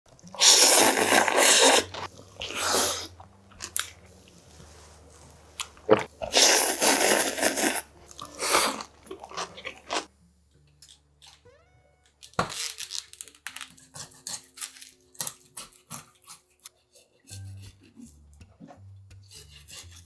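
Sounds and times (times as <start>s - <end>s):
man slurping noodles: 0.3s - 3.2s, 5.9s - 8.9s
chewing and mouth sounds: 5.6s - 10.1s.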